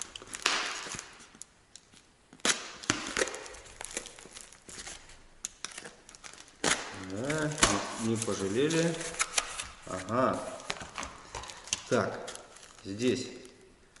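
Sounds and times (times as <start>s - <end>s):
cardboard and tape tearing: 2.4s - 13.0s.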